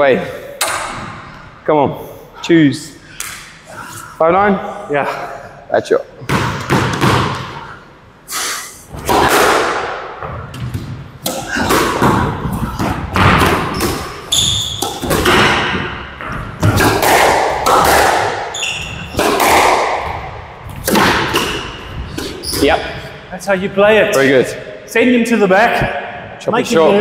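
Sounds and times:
squash ball hits echoing: 0.6s - 1.2s, 6.2s - 7.7s, 8.9s - 22.8s
court shoes squeaking: 10.3s - 16.8s, 18.4s - 19.3s, 20.1s - 23.2s.

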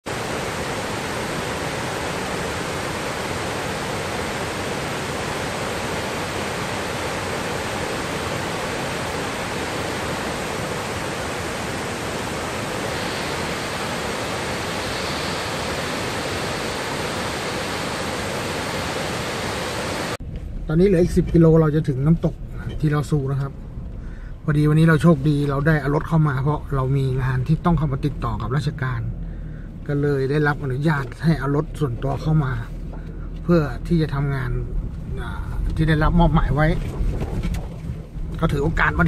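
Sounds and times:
waterfall rushing: 0.1s - 20.2s.

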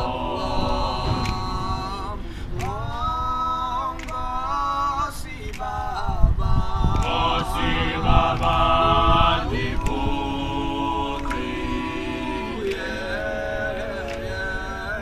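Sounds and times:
low thumps: 0.0s - 4.6s
group singing a cappella: 0.0s - 15.0s.

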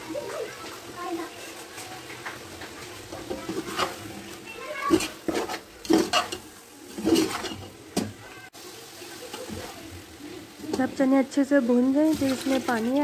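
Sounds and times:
metal spoon scraping a pot: 3.2s - 7.8s.

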